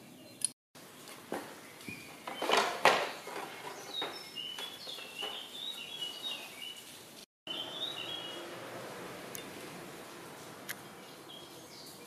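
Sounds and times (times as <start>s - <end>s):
small bird chirping: 3.2s - 6.9s, 7.5s - 8.5s.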